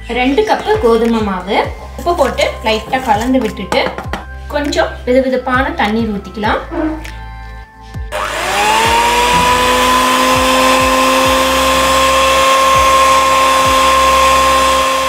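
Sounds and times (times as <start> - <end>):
hand mixer motor whine: 8.1 - 15.0.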